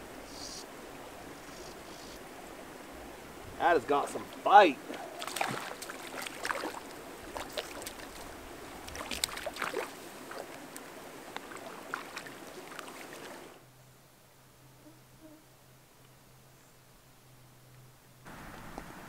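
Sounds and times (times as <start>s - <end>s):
fish splashing in water: 4.9s - 10.6s, 11.4s - 13.6s.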